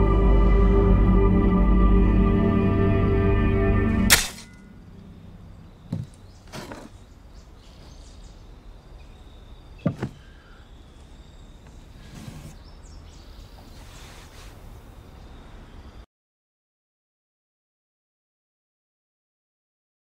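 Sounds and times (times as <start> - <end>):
low outdoor background: 0.0 - 16.1
knocks and scuffs in loose soil: 5.9 - 7.0.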